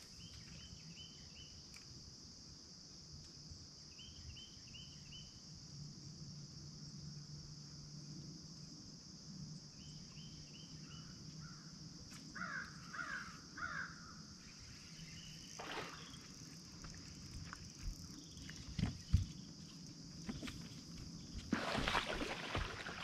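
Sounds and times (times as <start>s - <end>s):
high-pitched insect chorus: 0.0s - 23.0s
bird cawing: 12.4s - 14.2s.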